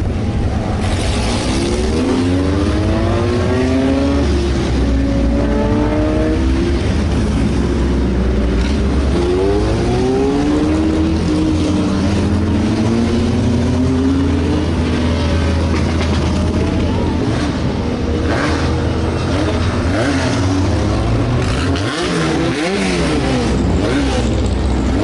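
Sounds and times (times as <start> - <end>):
race cars revving past: 0.7 - 25.0.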